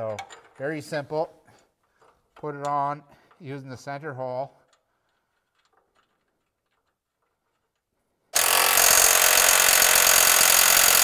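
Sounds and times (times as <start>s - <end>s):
cordless power driver running: 8.4s - 11.0s.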